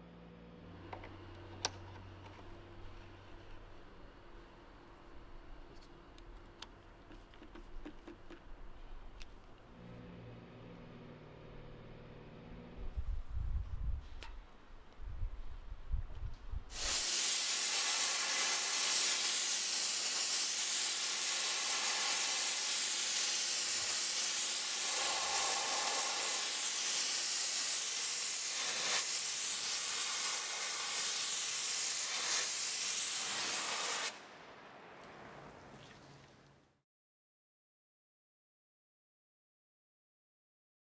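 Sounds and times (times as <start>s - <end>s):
pressure washer spraying concrete: 16.7s - 34.2s.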